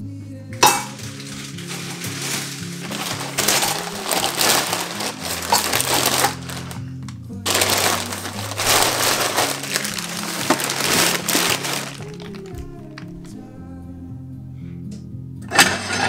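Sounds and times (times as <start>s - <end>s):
background music with bass: 0.0s - 16.0s
plastic bags rustling: 0.6s - 13.4s.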